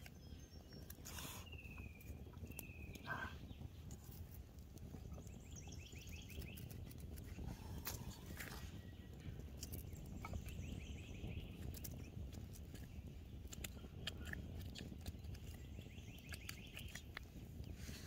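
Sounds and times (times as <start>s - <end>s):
campfire crackling and popping: 2.0s - 18.0s.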